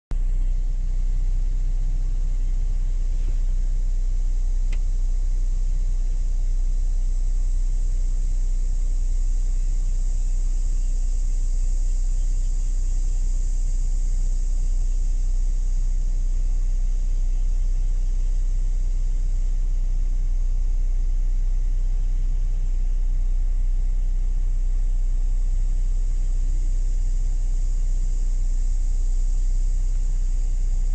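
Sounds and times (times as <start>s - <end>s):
low rumble: 0.1s - 30.9s
high-pitched hiss: 4.6s - 19.8s, 25.0s - 30.9s.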